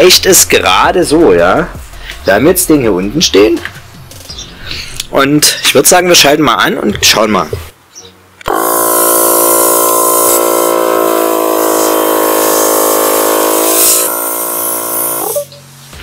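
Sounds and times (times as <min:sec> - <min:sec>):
air compressor running: 0:08.4 - 0:15.4.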